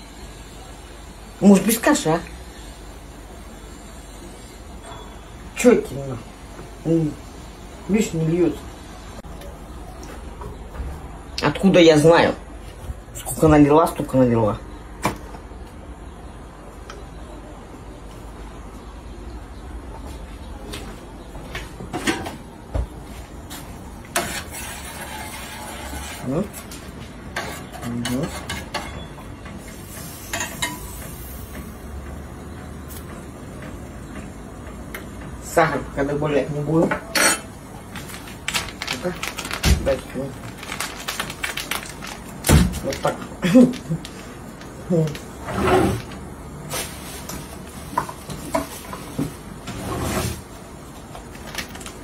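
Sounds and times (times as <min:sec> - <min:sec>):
drawer sliding scrapes: 0:45.4 - 0:46.2, 0:49.6 - 0:50.5.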